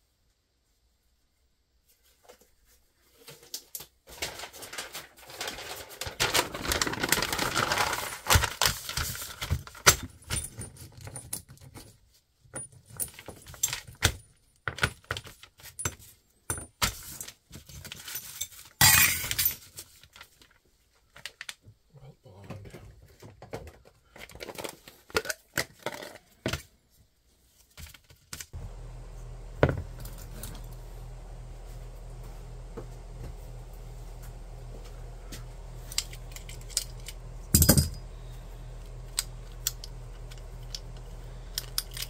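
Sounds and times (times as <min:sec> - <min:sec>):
paper rustling: 0:02.0 - 0:09.5
small metal parts clinking: 0:35.6 - 0:38.3, 0:38.9 - 0:42.0.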